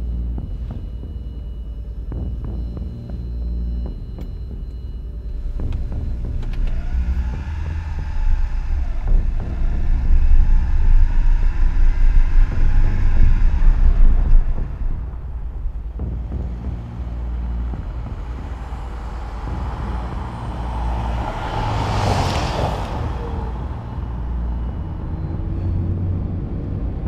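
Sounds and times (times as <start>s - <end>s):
car road and wind rumble: 0.0s - 27.0s
street noise: 0.0s - 27.0s
car passing: 5.7s - 27.0s.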